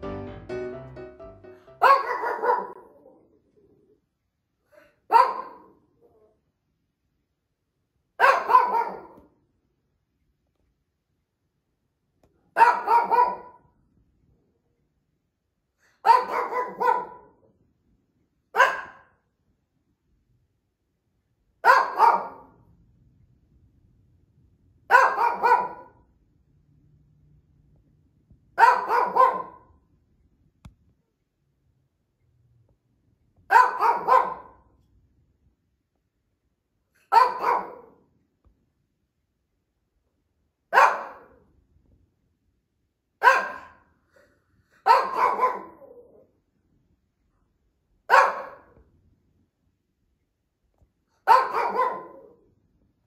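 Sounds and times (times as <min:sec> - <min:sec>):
small dog barking: 0:01.8 - 0:03.2, 0:05.0 - 0:06.2, 0:08.2 - 0:09.3, 0:12.5 - 0:13.7, 0:15.9 - 0:17.4, 0:18.5 - 0:19.2, 0:21.6 - 0:22.6, 0:24.9 - 0:26.0, 0:28.6 - 0:29.8, 0:33.5 - 0:34.7, 0:37.0 - 0:38.1, 0:40.7 - 0:41.4, 0:43.2 - 0:43.9, 0:44.8 - 0:46.3, 0:48.1 - 0:48.8, 0:51.2 - 0:52.4.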